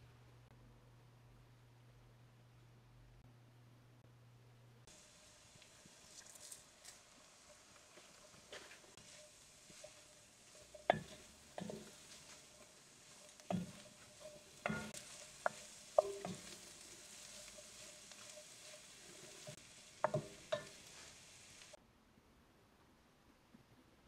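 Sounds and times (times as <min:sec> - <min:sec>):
faint sizzle: 0:04.8 - 0:21.8
utensil knocking and scraping pot: 0:04.9 - 0:21.8.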